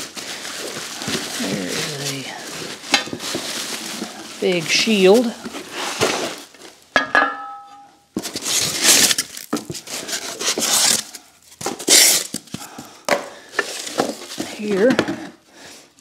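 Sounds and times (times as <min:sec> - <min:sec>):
packing materials rustling: 0:00.0 - 0:06.9, 0:08.1 - 0:16.0
metal shield clanking on concrete: 0:07.0 - 0:07.9.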